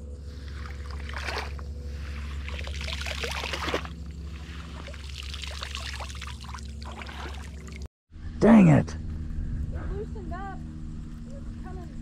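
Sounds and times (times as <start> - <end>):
low hum: 0.0 - 12.0
water splashing and trickling: 0.2 - 7.9.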